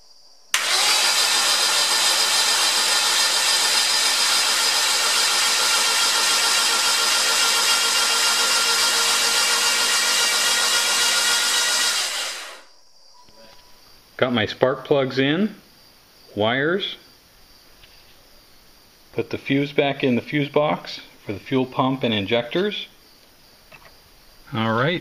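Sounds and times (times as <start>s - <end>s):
starter motor whirring: 0.6s - 12.7s.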